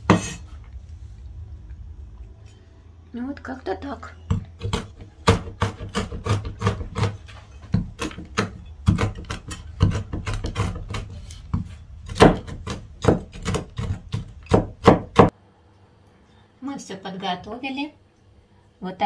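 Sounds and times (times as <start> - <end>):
knife chopping nuts on wooden board: 4.3 - 15.3.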